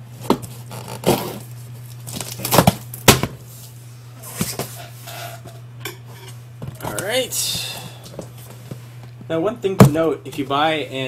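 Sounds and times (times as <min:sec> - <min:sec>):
blade slitting packing tape: 0:02.1 - 0:02.9.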